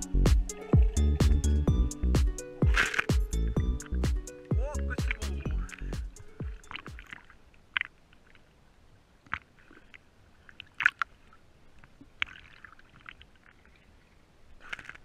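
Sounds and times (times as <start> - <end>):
small waves lapping: 0.3 - 1.3, 2.2 - 15.0
sharp short splashes: 2.6 - 3.3.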